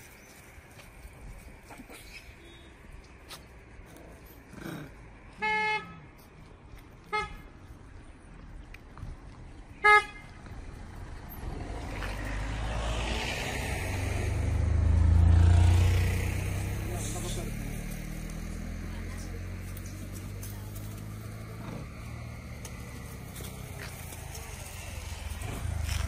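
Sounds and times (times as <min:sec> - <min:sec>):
vehicle horn tooting: 0:05.4 - 0:06.0, 0:07.1 - 0:07.4, 0:09.8 - 0:10.3
vehicle passing by: 0:10.5 - 0:26.0.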